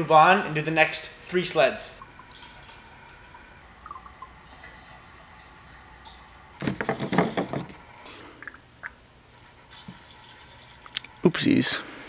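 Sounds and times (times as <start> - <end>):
liquid trickling into tank: 2.0 - 6.6, 8.2 - 11.2.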